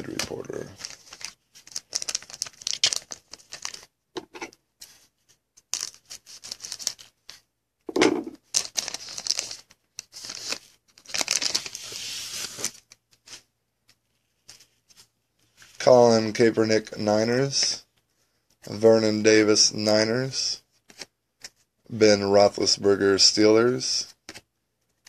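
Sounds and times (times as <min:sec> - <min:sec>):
foil wrapper tearing and crinkling: 0:00.8 - 0:03.8, 0:08.4 - 0:12.8.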